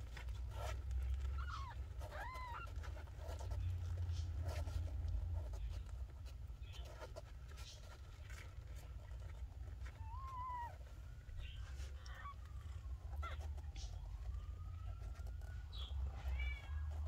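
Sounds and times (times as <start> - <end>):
kittens mewing: 0.6 - 4.4, 9.7 - 14.1, 15.7 - 17.0.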